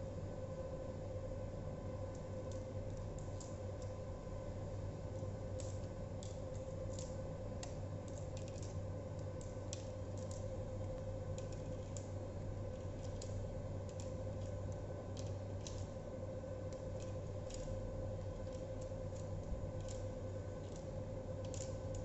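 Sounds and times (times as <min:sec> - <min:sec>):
steady background hum: 0:00.0 - 0:22.0
hands handling cables clicking: 0:05.2 - 0:10.5.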